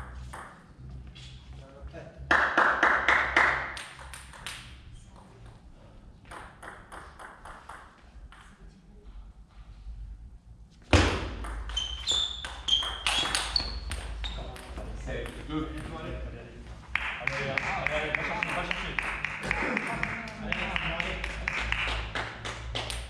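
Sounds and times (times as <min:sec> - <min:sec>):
shoes squeaking on floor: 0:11.6 - 0:14.8.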